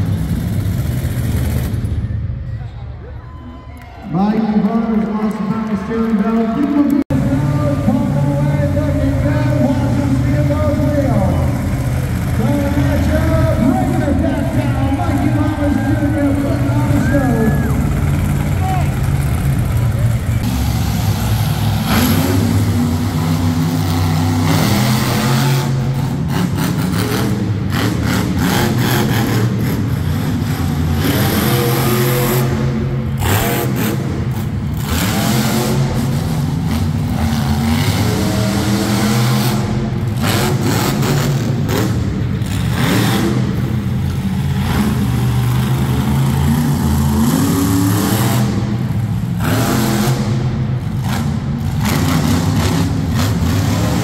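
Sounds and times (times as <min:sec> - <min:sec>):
truck engine revving hard: 0:07.0 - 0:54.0.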